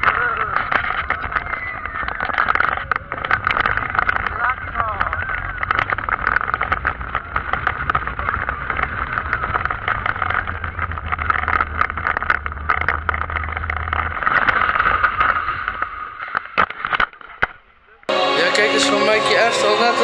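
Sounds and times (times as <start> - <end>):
roller coaster rattling on track: 1.1 - 15.1.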